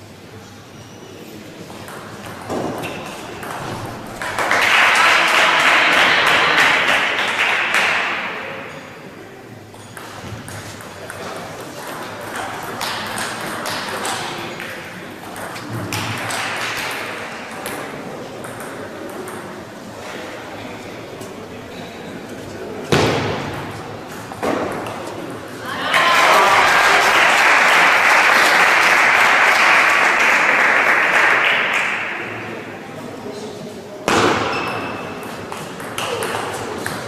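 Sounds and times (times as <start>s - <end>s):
table tennis ball pinging: 1.8s - 4.4s, 9.8s - 19.6s, 34.1s - 37.0s.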